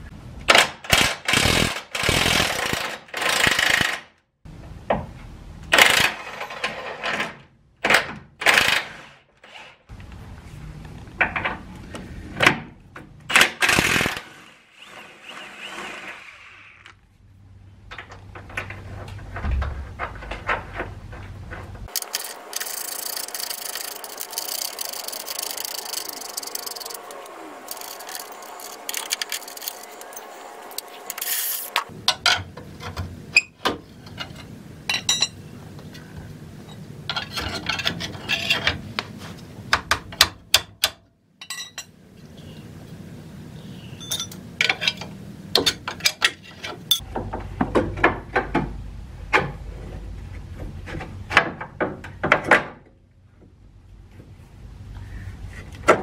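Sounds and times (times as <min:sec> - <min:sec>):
impact wrench running: 0:00.9 - 0:04.0, 0:21.9 - 0:31.9
metal tools clinking on steel: 0:21.9 - 0:35.4, 0:41.4 - 0:41.9, 0:44.0 - 0:47.0.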